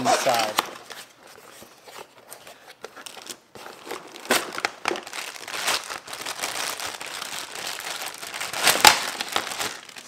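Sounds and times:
plastic wrapping crinkling: 0:00.0 - 0:10.0.

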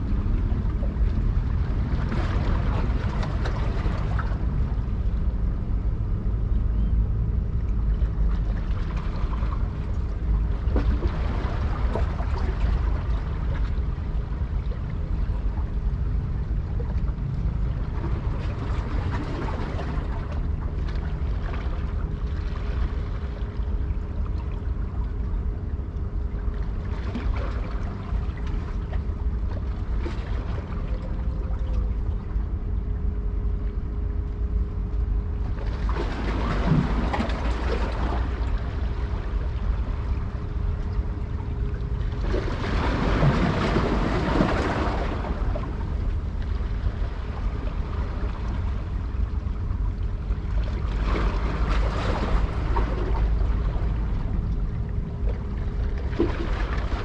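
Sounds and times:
faint constant hum: 0:00.0 - 0:57.0
ship engine rumble: 0:00.0 - 0:57.0
water wash and wind: 0:00.0 - 0:57.0.

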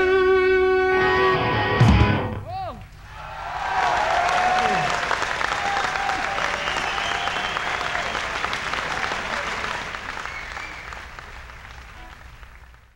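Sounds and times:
audience applauding: 0:03.1 - 0:12.9.

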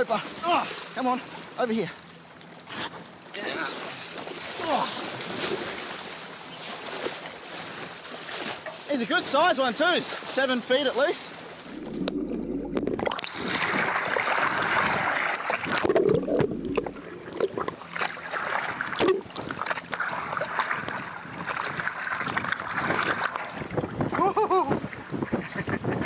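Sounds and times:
water splashing and churning: 0:00.0 - 0:26.0
water slapping against camera: 0:11.5 - 0:23.8.

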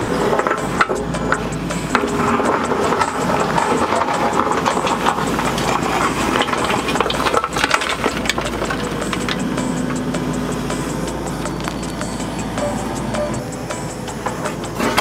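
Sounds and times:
sharp knocks and clatter: 0:00.0 - 0:10.8
excavator engine running: 0:00.0 - 0:15.0.

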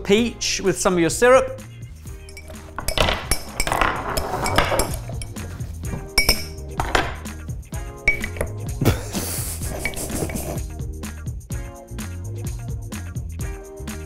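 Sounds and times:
background music: 0:00.0 - 0:14.0
metal spoon clinking against glass: 0:02.2 - 0:07.3, 0:08.1 - 0:08.6.

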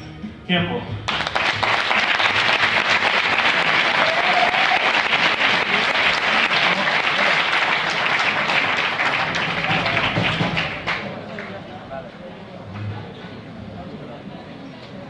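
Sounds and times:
audience applauding: 0:01.1 - 0:11.7.

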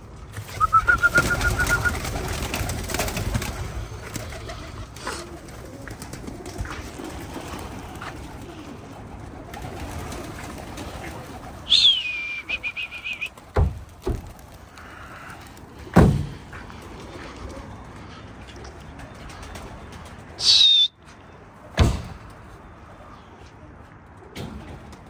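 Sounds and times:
pigeon flock taking off: 0:00.2 - 0:20.6, 0:24.1 - 0:25.0
pigeons cooing: 0:00.4 - 0:13.5, 0:14.4 - 0:20.9
loud falling whistle with trill: 0:00.6 - 0:02.0, 0:11.7 - 0:13.3, 0:20.4 - 0:21.0.

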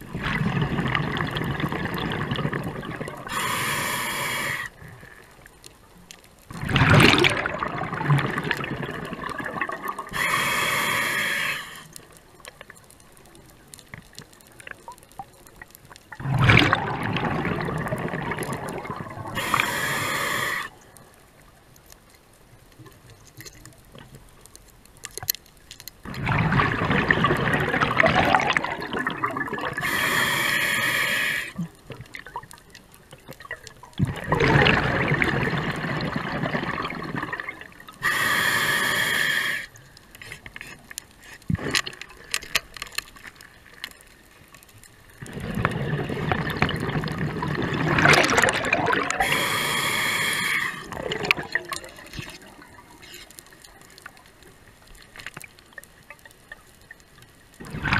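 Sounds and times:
exhaled bubbles rushing: 0:00.0 - 0:03.4, 0:06.5 - 0:10.2, 0:16.2 - 0:19.6, 0:26.1 - 0:29.8, 0:33.4 - 0:38.0, 0:45.2 - 0:49.6, 0:50.8 - 0:53.0, 0:57.6 - 0:57.9
regulator inhale hiss: 0:03.3 - 0:05.4, 0:10.1 - 0:12.0, 0:19.4 - 0:20.8, 0:29.8 - 0:31.6, 0:38.0 - 0:40.4, 0:49.2 - 0:51.0.

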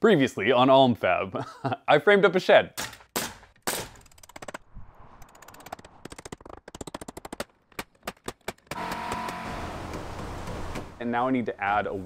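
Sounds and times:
nail gun firing: 0:02.8 - 0:04.5, 0:07.0 - 0:10.9.

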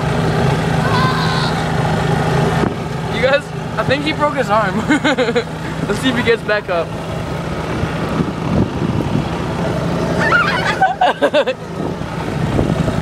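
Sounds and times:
golf cart motor drone: 0:00.0 - 0:13.0.

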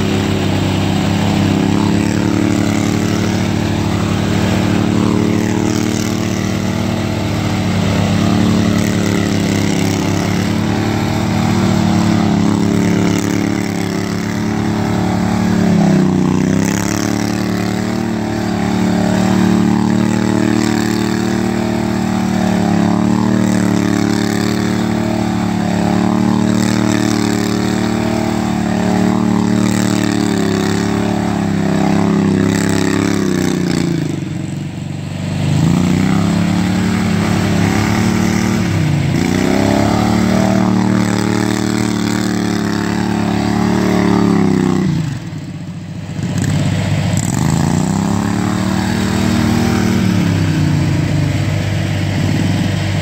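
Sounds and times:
riding lawn mower engine: 0:00.0 - 0:53.0.

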